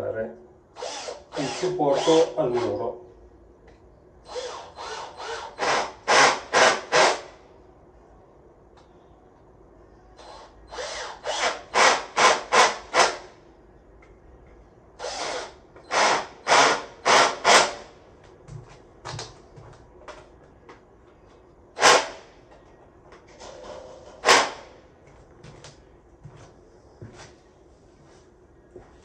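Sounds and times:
screws driven into wall: 0.8 - 2.8, 4.3 - 7.3, 10.2 - 13.2, 15.0 - 17.9, 21.8 - 22.3, 23.4 - 24.7.

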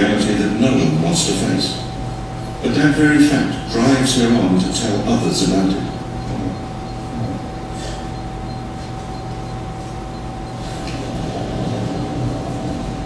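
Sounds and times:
faint constant hum: 0.0 - 13.0
low rumble and hiss: 0.0 - 13.0.

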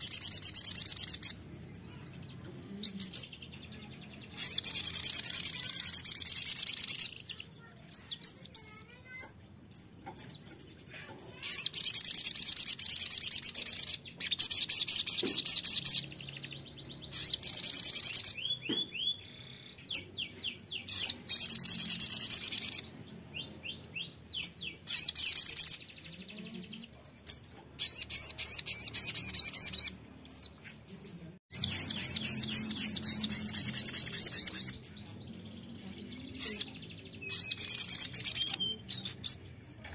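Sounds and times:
bird singing high rattling trills: 0.0 - 2.3, 3.0 - 23.0, 31.5 - 39.6.

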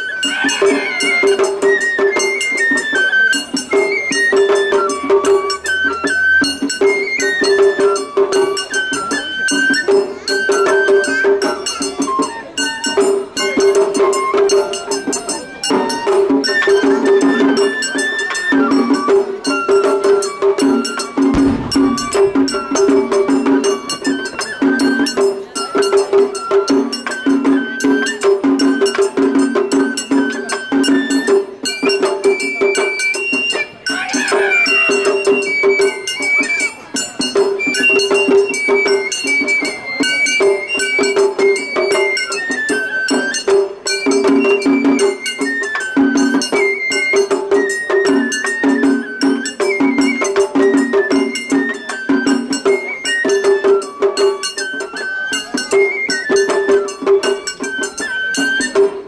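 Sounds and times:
high bamboo flute melody: 0.0 - 59.0
taiko drum strokes: 19.8 - 26.3
clanging hand gong: 21.2 - 24.2.

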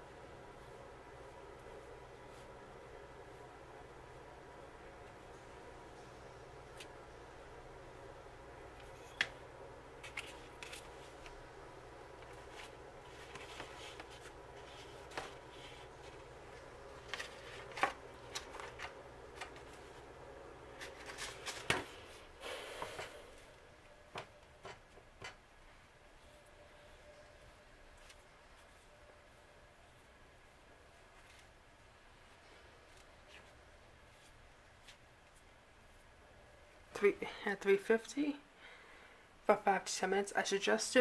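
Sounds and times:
paper rustling: 10.0 - 11.4, 12.2 - 20.1, 20.7 - 22.2.

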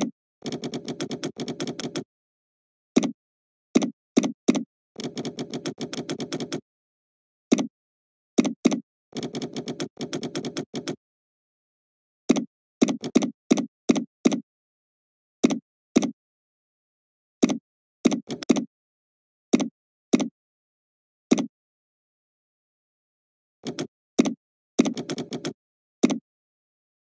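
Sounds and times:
keyboard typing: 0.0 - 2.1, 3.0 - 3.2, 3.8 - 6.6, 7.5 - 7.7, 8.4 - 11.0, 12.3 - 14.4, 17.4 - 18.7, 23.6 - 26.2
mouse clicks: 3.8 - 6.6, 7.5 - 7.7, 12.3 - 14.4, 17.4 - 18.7, 21.3 - 21.5, 23.6 - 26.2.

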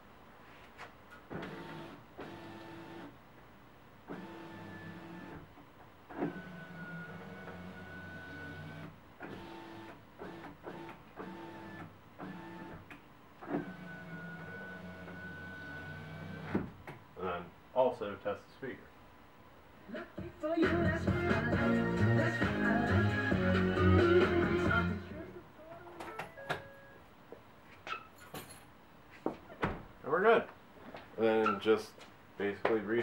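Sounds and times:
power window motor whine: 6.1 - 12.8, 13.5 - 16.6.

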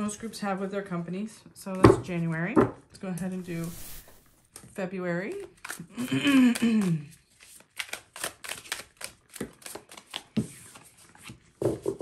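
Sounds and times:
person speaking: 3.4 - 4.3
cards being shuffled: 7.4 - 10.2.

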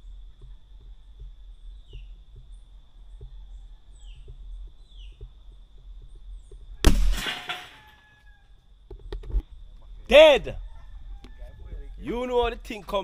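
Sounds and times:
air rifle shot: 6.8 - 7.8.

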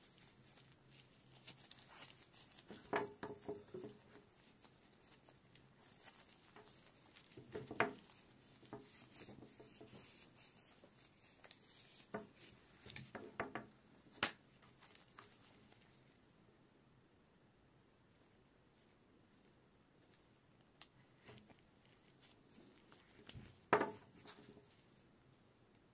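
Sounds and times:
cable rubbing in gloved hands: 0.0 - 13.7, 20.8 - 25.1.

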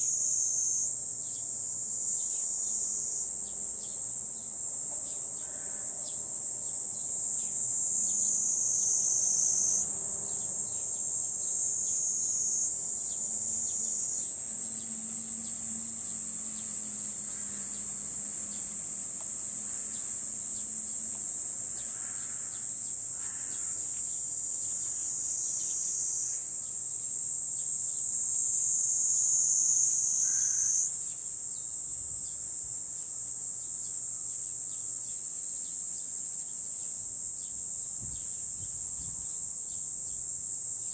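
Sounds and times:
insects buzzing: 0.0 - 40.9.

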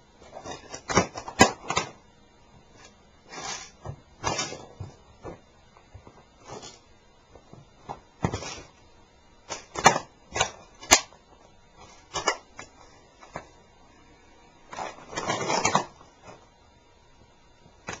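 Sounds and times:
plastic toy crunching and cracking: 14.7 - 15.9.

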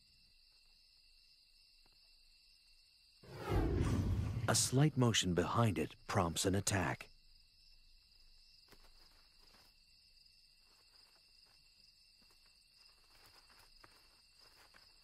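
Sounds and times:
crickets trilling: 4.7 - 15.0.

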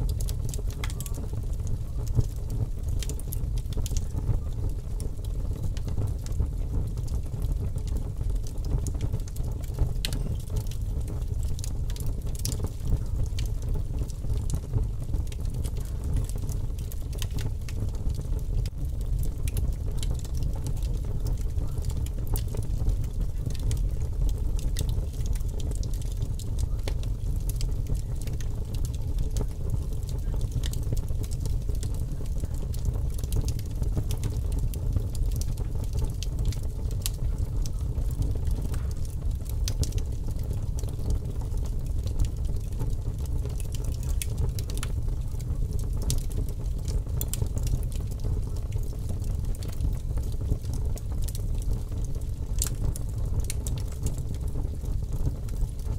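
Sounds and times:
fire crackling: 0.0 - 55.9.

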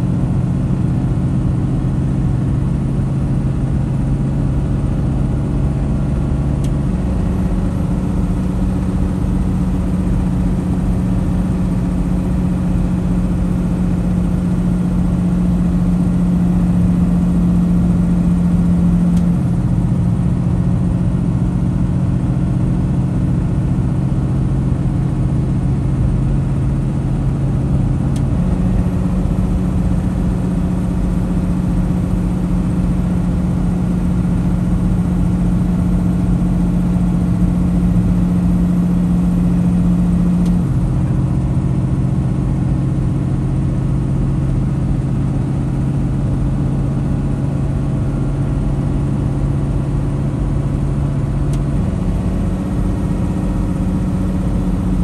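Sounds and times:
road noise: 0.0 - 42.5
truck diesel engine drone: 0.0 - 55.0.

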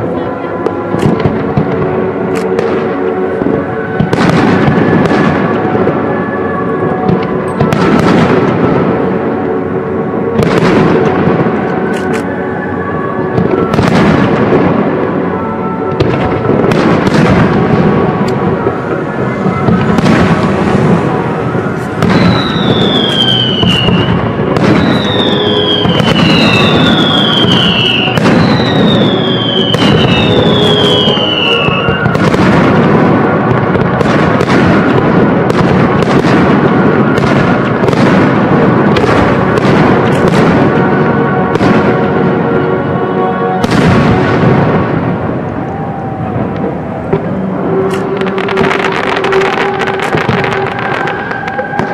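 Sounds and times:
music: 0.0 - 51.9
falling firework whistles: 16.1 - 33.2, 45.6 - 51.9.

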